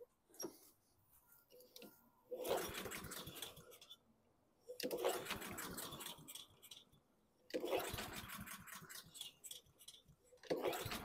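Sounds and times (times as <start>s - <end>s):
mower engine pull-start: 10.5s - 11.0s.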